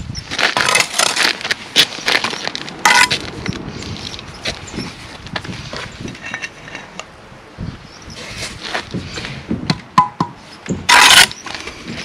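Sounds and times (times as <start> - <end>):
loud scrape: 0.5 - 1.4, 10.4 - 12.0
tools and bricks knocking: 0.6 - 1.2, 2.9 - 3.2, 6.1 - 7.1, 9.7 - 11.6.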